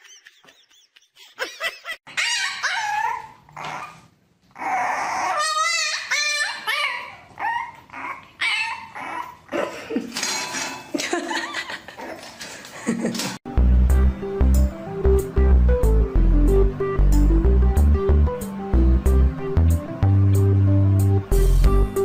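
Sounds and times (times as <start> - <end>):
puppy whining and howling: 2.1 - 9.6.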